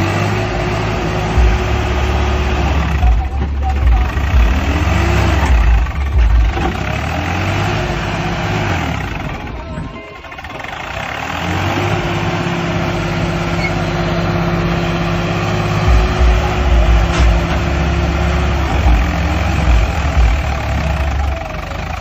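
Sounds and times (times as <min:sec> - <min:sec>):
tractor engine running: 0:00.0 - 0:22.0
heavy deep thumps: 0:00.8 - 0:08.0, 0:15.8 - 0:21.0.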